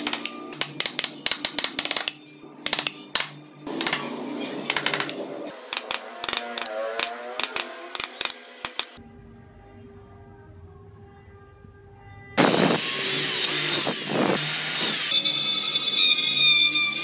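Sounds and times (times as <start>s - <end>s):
chisel tapping into wood: 0.0s - 4.1s, 4.7s - 8.8s.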